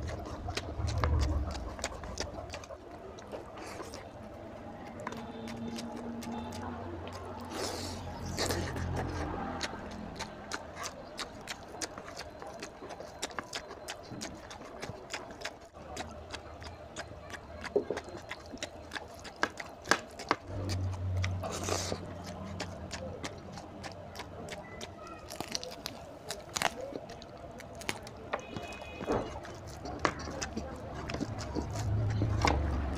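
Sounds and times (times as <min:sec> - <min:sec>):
wet chewing smacks: 0:00.0 - 0:32.9.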